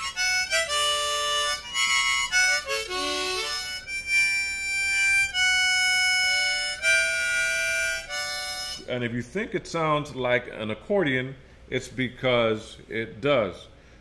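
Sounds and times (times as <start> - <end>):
harmonica notes: 0.0 - 9.3.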